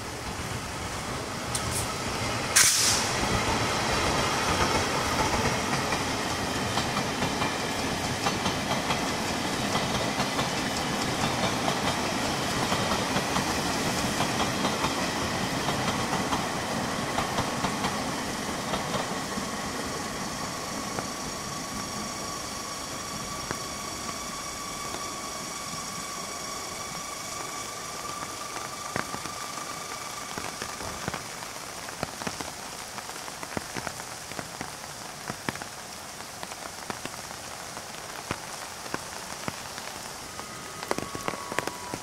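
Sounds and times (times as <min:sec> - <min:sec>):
heavy rain hissing: 0:00.0 - 0:42.0
train wheels rumbling on rails: 0:00.0 - 0:42.0
clickety-clack over rail joints: 0:02.6 - 0:19.6, 0:40.8 - 0:42.0.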